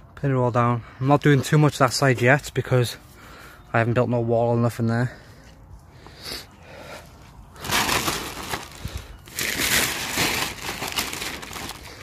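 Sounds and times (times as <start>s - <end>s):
plastic tarp rustling and crinkling: 7.6s - 12.0s.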